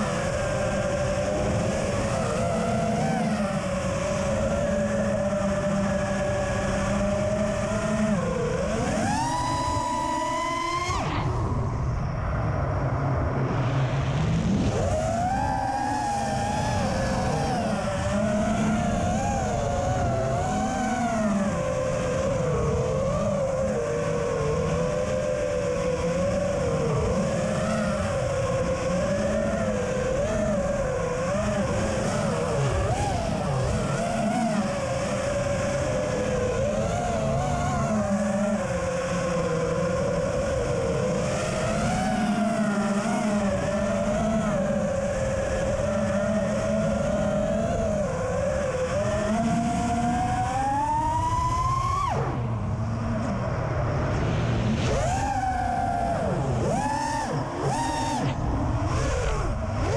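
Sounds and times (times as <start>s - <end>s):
quadcopter motors whining: 0.0s - 59.9s.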